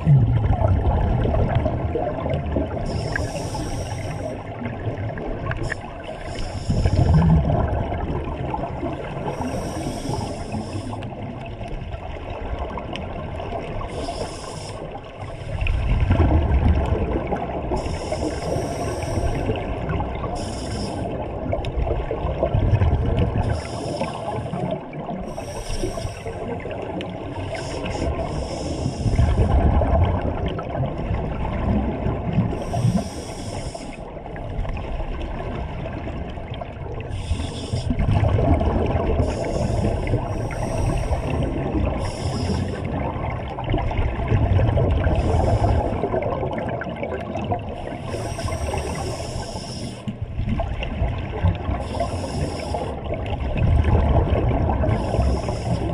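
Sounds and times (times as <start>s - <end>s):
bubbling rumble of exhaled air: 0.0s - 55.9s
hissing regulator breaths: 2.8s - 4.4s, 5.5s - 7.2s, 9.2s - 11.1s, 13.8s - 15.7s, 17.8s - 19.6s, 20.3s - 21.2s, 23.4s - 26.6s, 27.3s - 29.4s, 32.6s - 34.1s, 37.1s - 38.0s, 39.2s - 42.9s, 45.2s - 46.0s, 47.8s - 50.1s, 51.8s - 53.1s, 54.9s - 55.9s.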